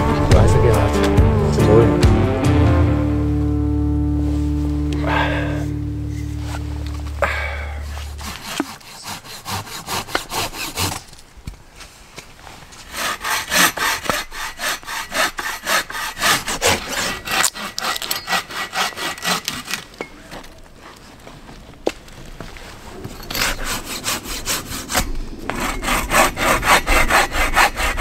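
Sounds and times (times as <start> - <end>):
hand saw cutting a log: 7.2 - 11.2, 12.8 - 20.0, 23.2 - 28.0.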